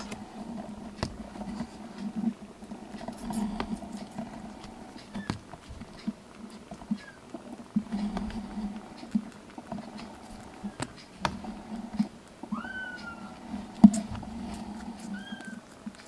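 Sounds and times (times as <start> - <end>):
kitten paws tapping on plastic: 0.0 - 16.0
kitten mewing: 12.5 - 13.3.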